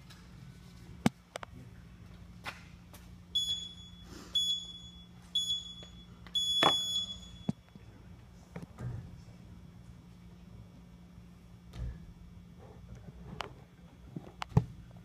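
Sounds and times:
timer beeps: 3.4s - 7.6s.

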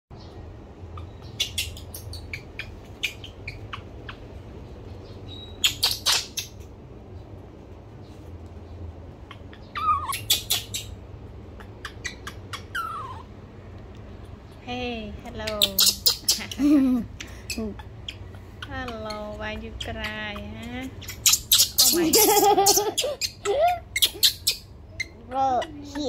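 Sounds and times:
baby monkey crying: 0.8s - 4.3s, 5.4s - 6.6s, 9.2s - 13.4s, 15.4s - 26.0s.

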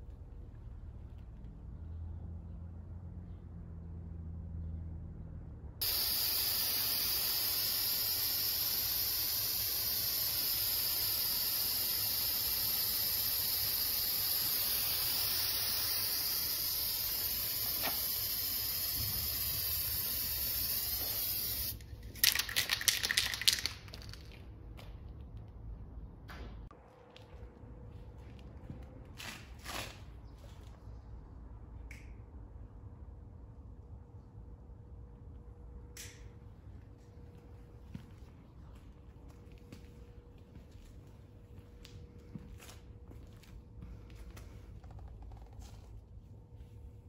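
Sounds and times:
aerosol spray can hissing: 5.8s - 21.8s.

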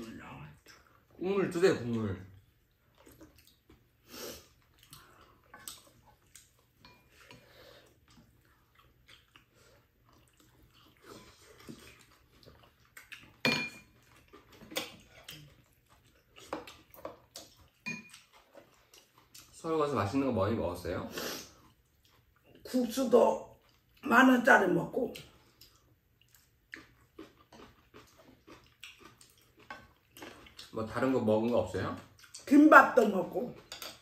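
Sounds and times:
quiet chewing: 0.0s - 1.2s, 1.8s - 19.6s, 21.4s - 22.8s, 23.4s - 24.1s, 25.1s - 34.0s
utensils clinking on bowls: 13.4s - 14.0s, 17.8s - 18.2s.

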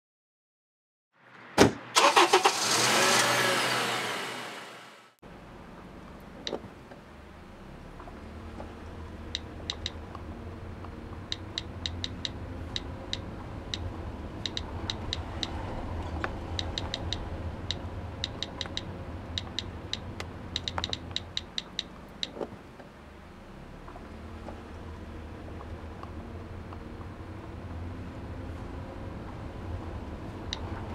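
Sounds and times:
car cabin hum: 5.3s - 29.9s.

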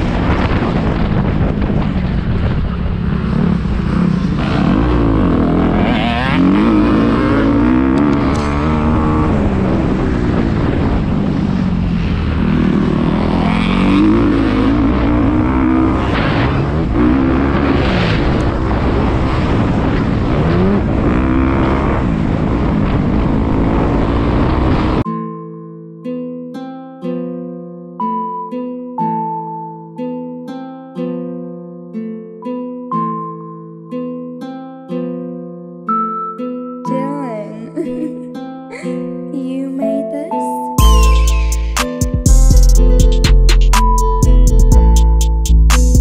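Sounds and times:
dirt bike engine revving: 2.7s - 25.0s.

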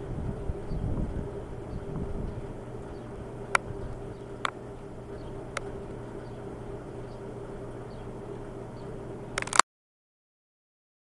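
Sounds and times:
outdoor background hum and rumble: 0.0s - 9.6s
sharp clicks: 9.4s - 9.6s.

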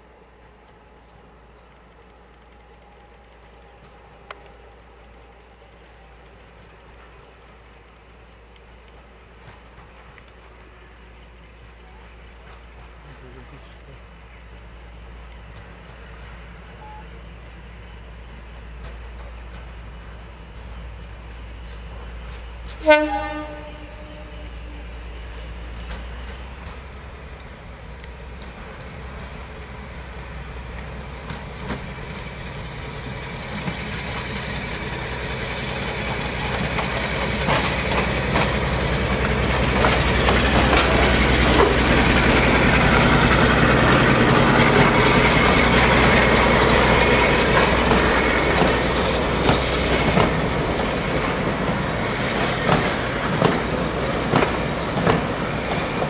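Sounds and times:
diesel locomotive engine drone: 0.0s - 56.0s
train wheels clicking over rail joints: 15.2s - 23.7s, 24.3s - 56.0s.

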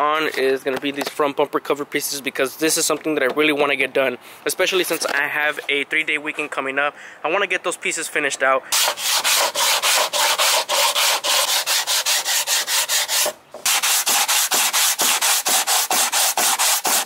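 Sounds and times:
sandpaper rubbing back and forth: 8.7s - 17.0s.

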